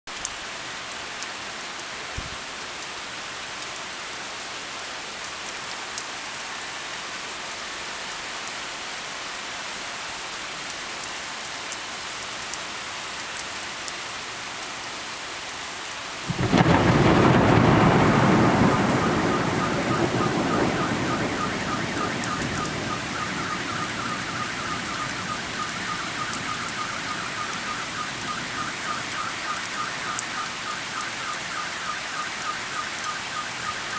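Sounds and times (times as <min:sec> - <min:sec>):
heavy rain falling: 0:00.1 - 0:33.9
thunderclap: 0:16.3 - 0:29.8.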